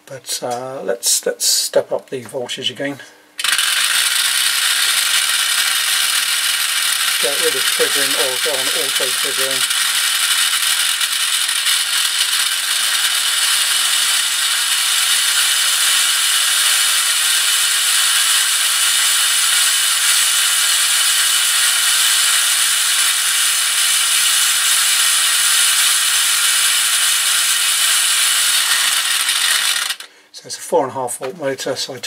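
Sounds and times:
plastic gears whirring: 0:03.4 - 0:30.1
small motor hum: 0:03.4 - 0:30.1.

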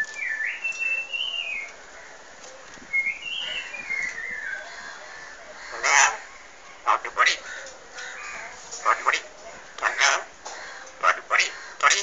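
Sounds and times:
myna bird whistling: 0:00.0 - 0:01.8, 0:02.9 - 0:04.6.

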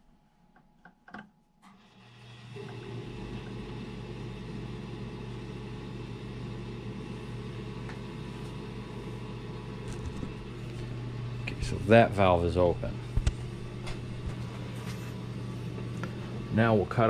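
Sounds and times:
steady machine hum: 0:02.1 - 0:17.0.

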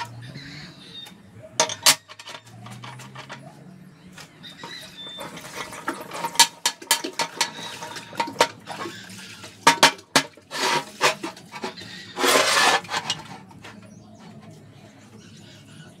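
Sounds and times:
steel parts knocking and clinking: 0:01.6 - 0:03.6, 0:04.2 - 0:08.9, 0:09.6 - 0:13.9
metal rasping: 0:04.6 - 0:14.4.

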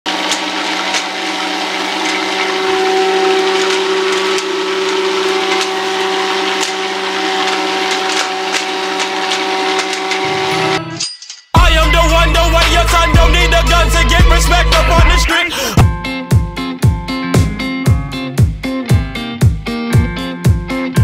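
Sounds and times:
vacuum cleaner motor running: 0:00.0 - 0:10.8
paper scraps ticking in hose: 0:00.1 - 0:10.3.

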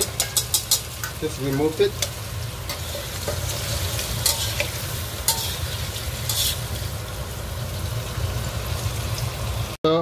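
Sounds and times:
utensils scraping a pan: 0:00.0 - 0:07.0
hot oil sizzling in a frying pan: 0:00.0 - 0:10.0.

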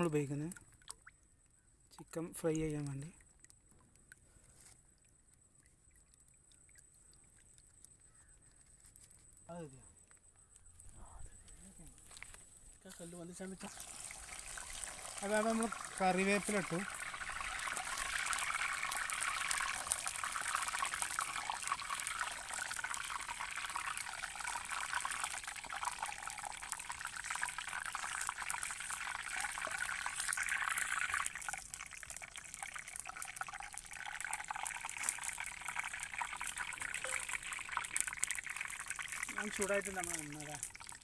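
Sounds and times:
leaves sizzling in hot oil: 0:12.8 - 0:41.0.

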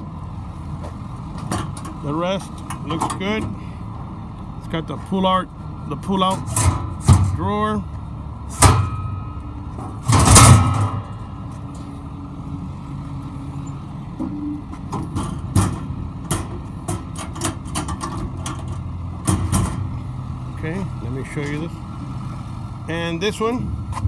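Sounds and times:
diesel engine idling: 0:00.0 - 0:24.0
metal knocks and clatter: 0:00.8 - 0:02.0, 0:06.2 - 0:07.5, 0:08.5 - 0:12.0, 0:14.2 - 0:20.0.

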